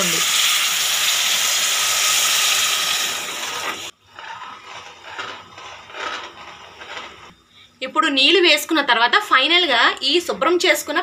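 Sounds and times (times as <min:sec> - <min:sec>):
masala sizzling and hissing: 0:00.0 - 0:07.4
metal spoon scraping pan: 0:03.5 - 0:07.4.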